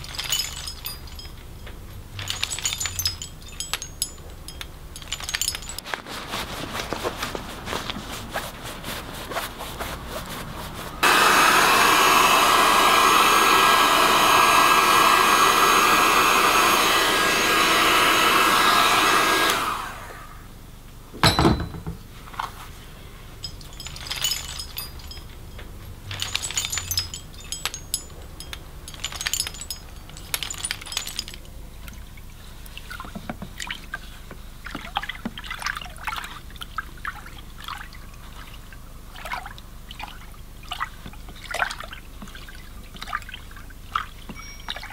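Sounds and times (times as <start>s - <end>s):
heat gun whirring hiss: 11.0s - 20.4s.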